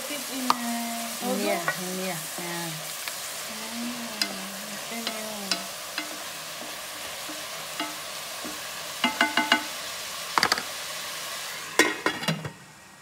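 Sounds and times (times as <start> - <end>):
onions sizzling in a pot: 0.0 - 13.0
wooden spoon knocking a pot: 5.0 - 9.7.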